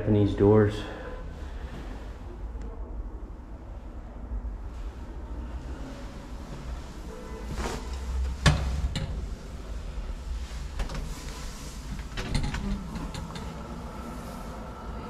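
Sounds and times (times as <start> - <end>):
heavy wooden doors swinging open: 6.6 - 15.0.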